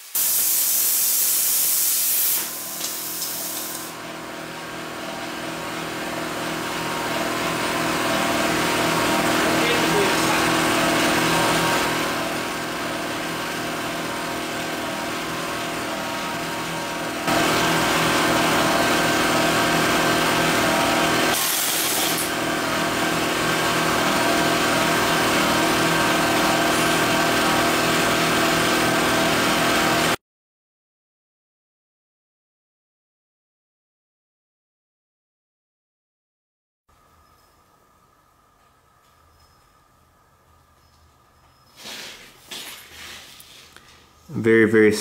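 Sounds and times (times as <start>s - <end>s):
burst of hiss: 0.0s - 3.9s, 41.8s - 43.3s
welder generator engine running: 2.2s - 30.2s.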